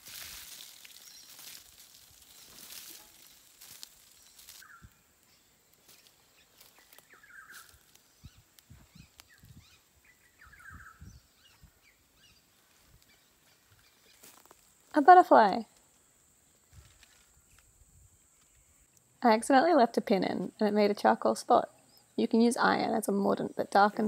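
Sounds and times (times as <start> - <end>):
bird chirping: 0.8 - 14.2.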